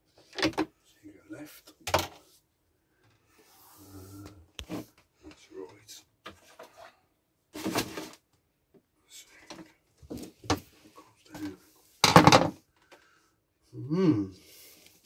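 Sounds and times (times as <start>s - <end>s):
knocks and scraping from wiring work: 6.2s - 8.3s.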